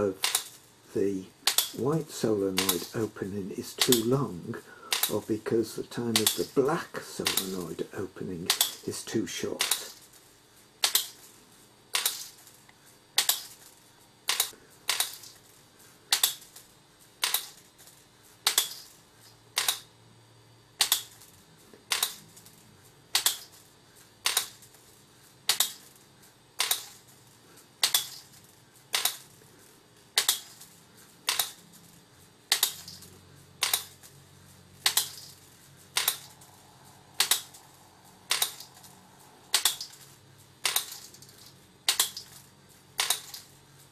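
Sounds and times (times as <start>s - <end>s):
solenoids clicking: 0.0s - 0.6s, 1.4s - 10.0s, 10.8s - 11.2s, 11.9s - 13.6s, 14.2s - 15.4s, 16.1s - 16.6s, 17.2s - 17.6s, 18.4s - 18.9s, 19.5s - 19.9s, 20.8s - 22.5s, 23.1s - 23.6s, 24.2s - 24.8s, 25.4s - 25.8s, 26.6s - 27.1s, 27.8s - 28.3s, 28.9s - 29.4s, 30.1s - 31.8s, 32.5s - 34.1s, 34.8s - 43.5s.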